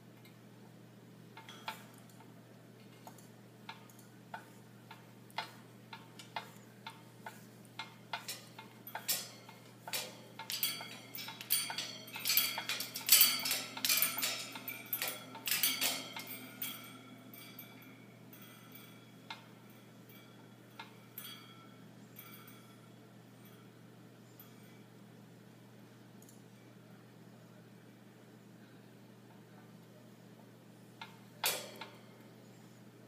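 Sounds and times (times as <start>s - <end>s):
beak and claws clicking on bars: 2.9s - 19.5s
metallic ringing: 7.3s - 24.8s.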